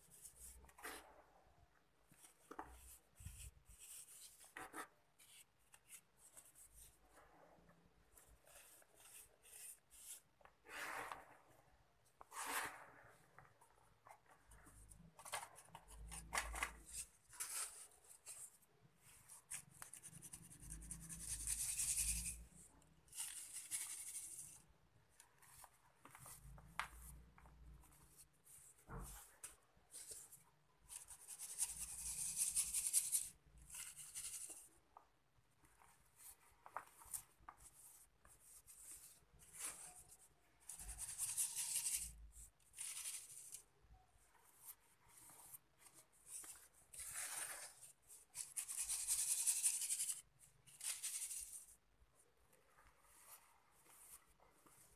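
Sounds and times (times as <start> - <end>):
powder being scooped and rubbed: 2.1 - 13.5, 14.1 - 24.6, 44.2 - 51.8, 52.6 - 54.9.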